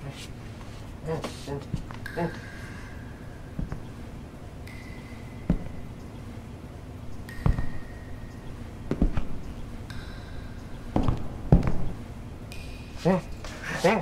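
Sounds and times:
footsteps dull thuds: 0.0s - 2.4s, 3.5s - 4.1s, 4.7s - 6.0s, 7.1s - 12.0s.

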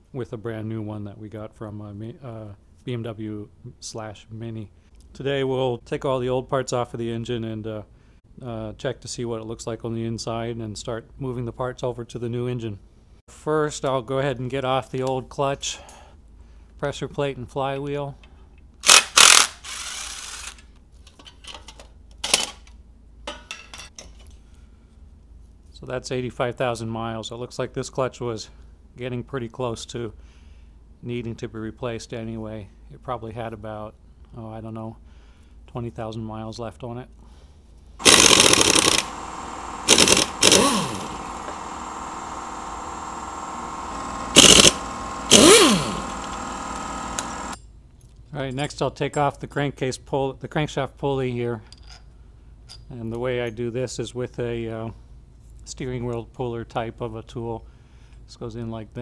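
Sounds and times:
cordless impact tool hammering: 38.0s - 47.6s
steady hum: 38.0s - 47.6s.

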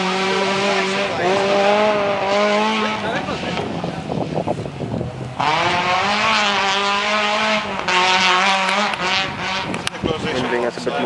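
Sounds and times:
rally car engine revving: 0.0s - 11.0s.

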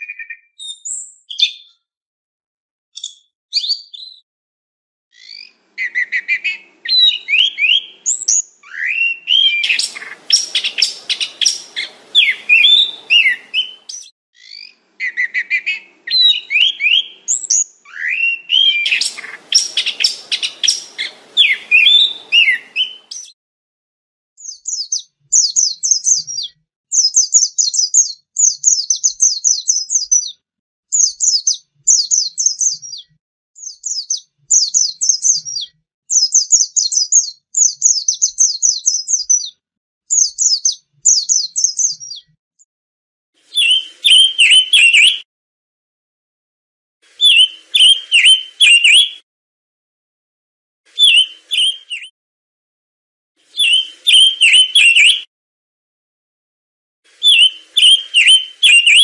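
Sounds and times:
bird twittering trills: 5.2s - 23.3s, 43.6s - 45.2s, 47.2s - 49.2s, 51.0s - 52.1s, 53.6s - 55.3s, 57.2s - 59.0s
thrush singing whistled phrases: 5.2s - 23.4s, 43.5s - 45.3s, 47.1s - 49.2s, 50.9s - 52.2s, 53.5s - 55.3s, 57.1s - 59.0s.

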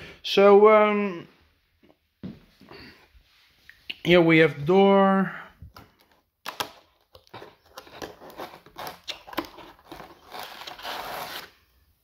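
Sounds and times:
cardboard scraping rustles: 7.4s - 11.5s.

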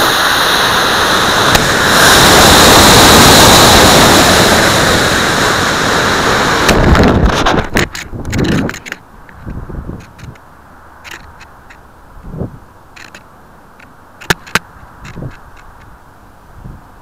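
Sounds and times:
rocket motor roar: 0.0s - 7.8s
wind buffeting microphone: 0.7s - 10.4s, 12.1s - 12.7s, 14.3s - 15.8s.

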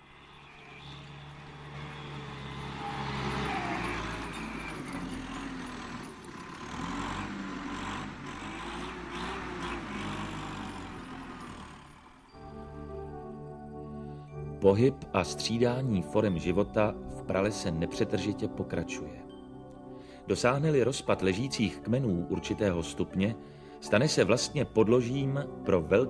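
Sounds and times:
engine noise: 0.0s - 12.6s.

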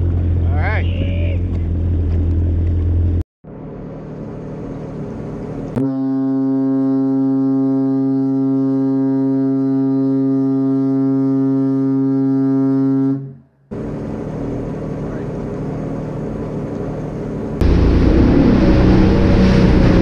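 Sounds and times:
ship horn blast: 5.7s - 13.6s, 17.6s - 20.0s
jet ski rushing on water: 13.7s - 20.0s.

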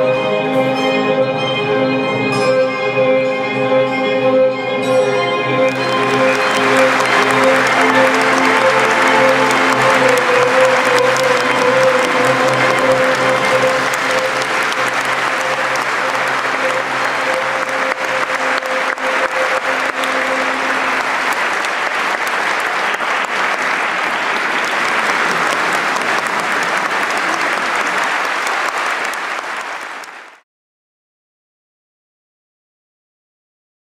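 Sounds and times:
violin long note: 0.0s - 22.5s
audience applauding: 5.4s - 30.4s.

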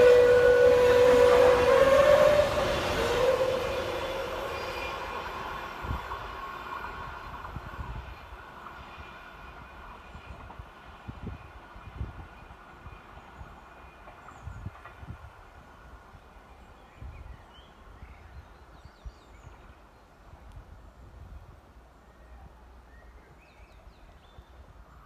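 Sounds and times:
two-tone train horn: 0.0s - 6.2s
train rumbling past: 0.0s - 18.7s.

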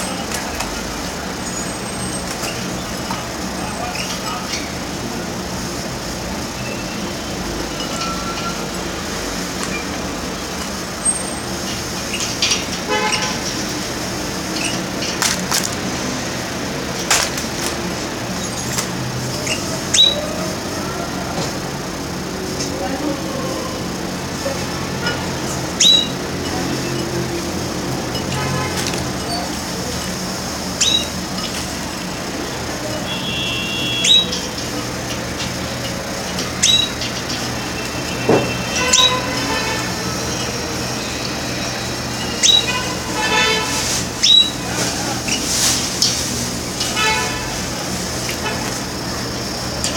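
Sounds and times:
canaries chirping: 0.0s - 49.9s
traffic hum: 0.0s - 49.9s
canary chirps: 11.0s - 13.7s, 14.5s - 15.1s, 19.4s - 20.5s, 25.4s - 31.8s, 33.0s - 46.2s.

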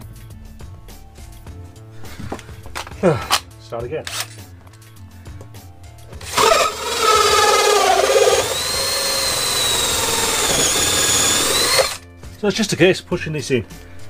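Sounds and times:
cordless drill with hole saw: 6.2s - 12.0s.

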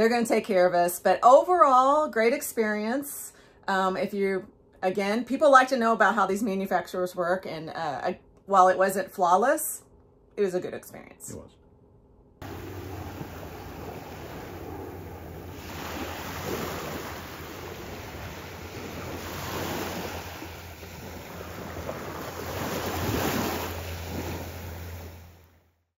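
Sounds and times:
surf washing onto beach: 12.4s - 25.4s
wind rumbling on microphone: 12.4s - 25.4s.

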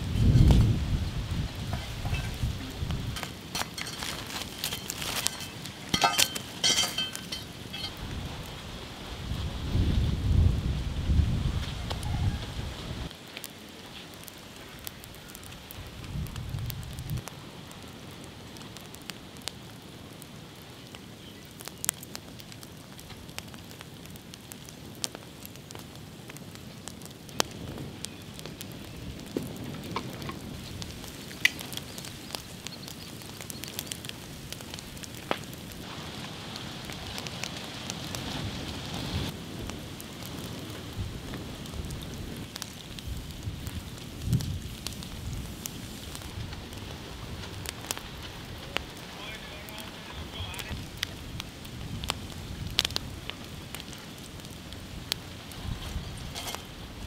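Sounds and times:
wood fire crackling and hissing: 0.0s - 57.0s.

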